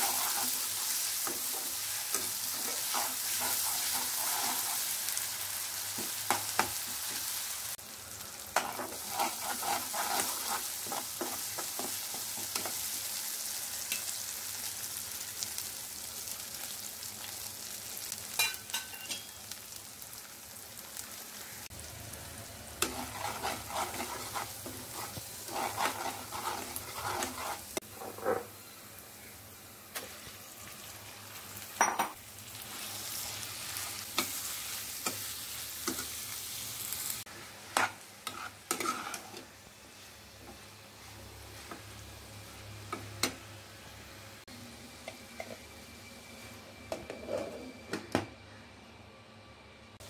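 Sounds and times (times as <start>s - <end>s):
spatula scraping a pan: 0.0s - 5.2s, 8.6s - 12.9s, 22.8s - 28.5s, 37.3s - 41.8s, 47.0s - 47.8s
onion sizzling in hot oil: 0.0s - 46.5s.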